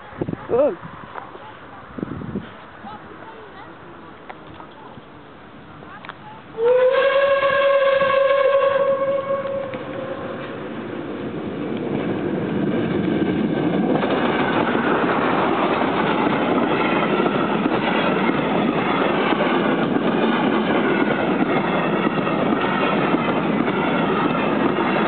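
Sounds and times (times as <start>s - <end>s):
wheels clacking on rails: 2.4s - 25.0s
steam train rumbling past: 5.3s - 25.0s.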